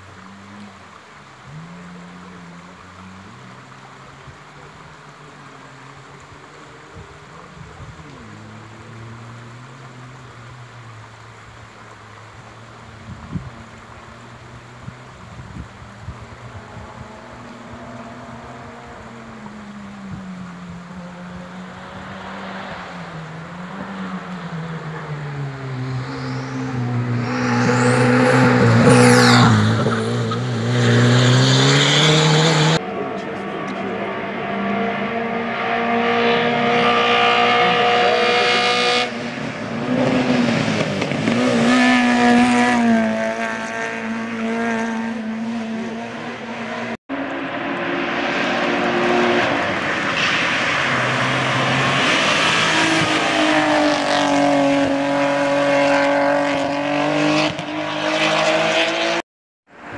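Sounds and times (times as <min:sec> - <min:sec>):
race cars revving past: 0:12.6 - 0:59.2.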